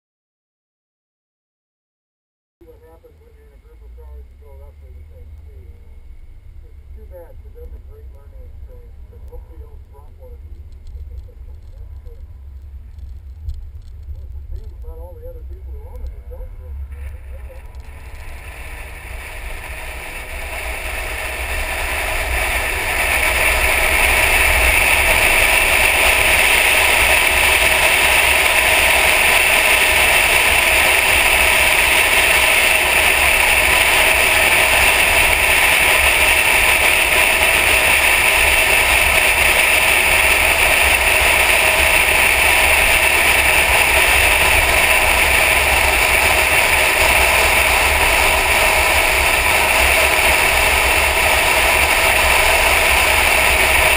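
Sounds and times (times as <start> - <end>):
road noise: 2.7 - 53.9
car engine: 2.8 - 53.9
wind rush: 15.4 - 53.9.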